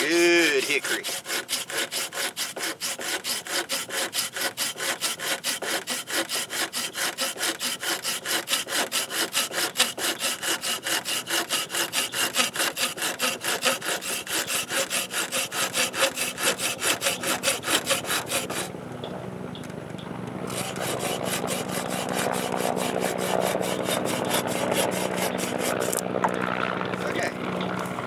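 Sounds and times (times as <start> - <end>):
pruning saw cutting wood: 0.0 - 18.7, 20.4 - 28.0
engine drone: 16.2 - 28.0.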